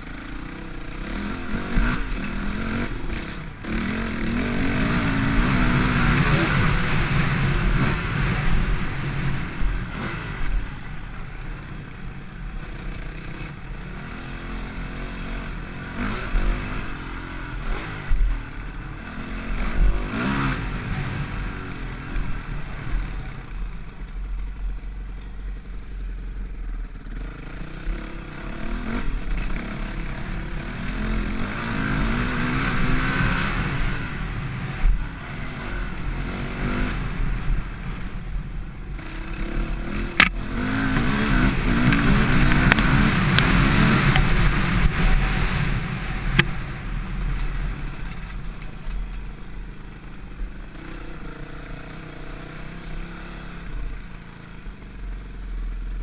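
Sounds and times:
dirt bike engine revving: 0.0s - 11.7s, 12.4s - 23.4s, 27.0s - 38.2s, 38.9s - 48.5s.

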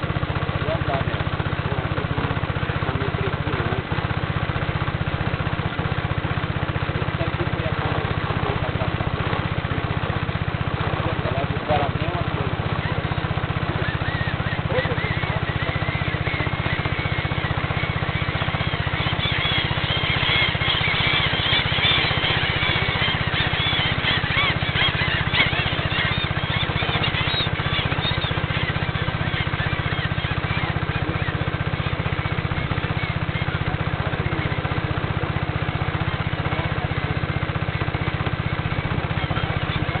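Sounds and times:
birds chirping: 0.0s - 40.0s
boat engine running: 0.0s - 40.0s.

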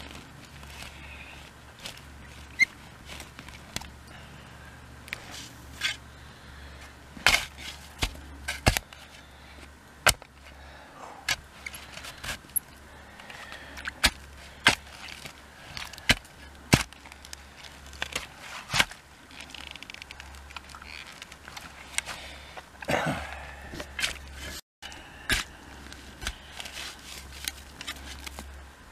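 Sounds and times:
spade chopping into wet soil: 7.2s - 8.8s.

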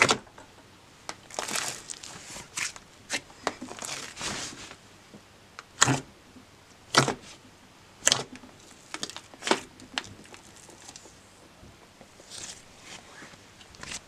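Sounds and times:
slime clicks and crackles: 8.0s - 11.1s.

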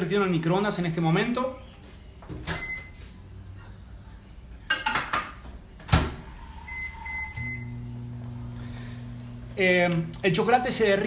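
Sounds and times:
microwave oven humming: 6.4s - 9.7s.

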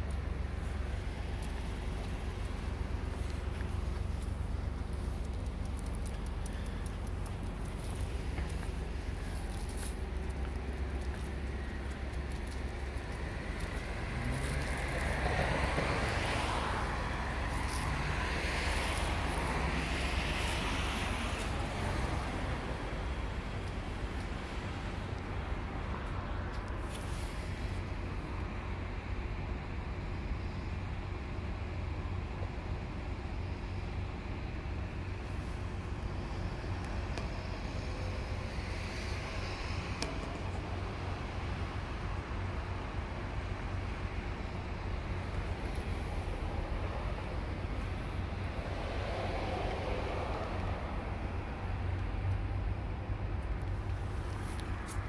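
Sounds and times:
steady low rumble: 0.0s - 55.0s
car passing by: 13.2s - 25.1s, 45.5s - 52.4s.

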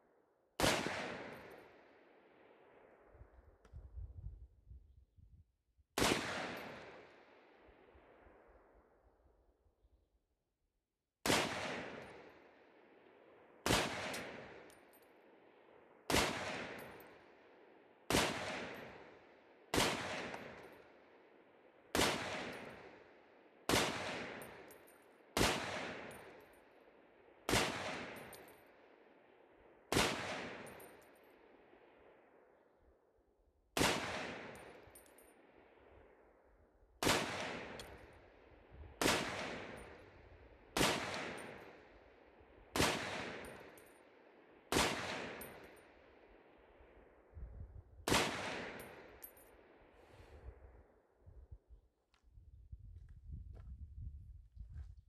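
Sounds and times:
rifle shots: 0.6s - 1.8s, 6.0s - 7.6s, 11.2s - 12.6s, 13.6s - 14.8s, 16.1s - 17.2s, 18.1s - 20.9s, 21.9s - 23.0s, 23.7s - 24.8s, 25.4s - 26.4s, 27.5s - 28.4s, 29.9s - 31.0s, 33.8s - 35.2s, 37.0s - 38.1s, 39.0s - 40.1s, 40.7s - 41.8s, 42.7s - 43.8s, 44.7s - 45.9s, 48.1s - 49.3s.

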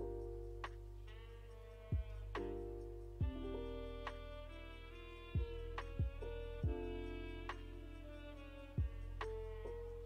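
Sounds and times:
held instrumental notes: 0.0s - 10.0s
steady low bass: 0.0s - 10.0s
deep drum thump: 3.2s - 3.4s.

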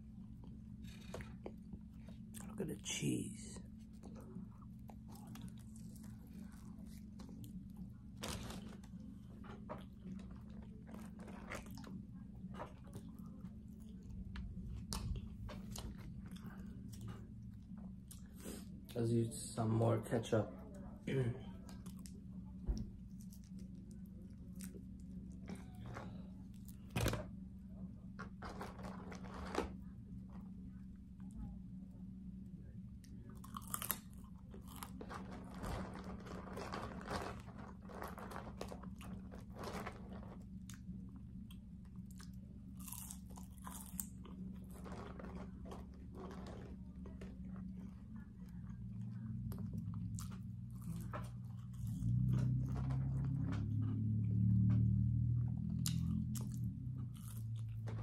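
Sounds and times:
steady low hum: 0.0s - 58.0s
aluminium foil crinkling: 5.3s - 14.0s, 28.4s - 29.8s, 33.7s - 40.7s, 43.0s - 48.2s
chewing with wet mouth clicks: 55.7s - 57.8s.

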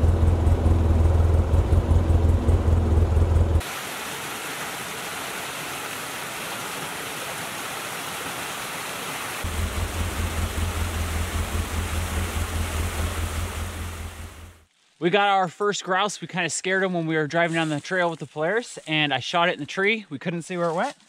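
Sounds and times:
low rumble: 0.0s - 3.6s, 9.5s - 14.6s
creek water rushing: 3.6s - 14.7s.

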